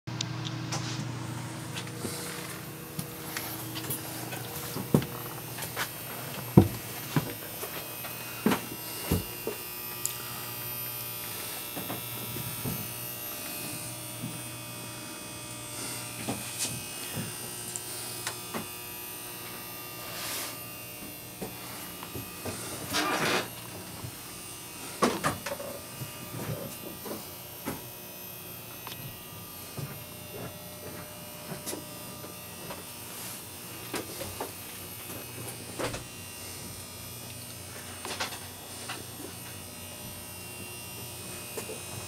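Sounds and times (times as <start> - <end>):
buzzing hum of machinery: 0.1 - 42.0
footsteps and handling knocks: 0.7 - 9.5.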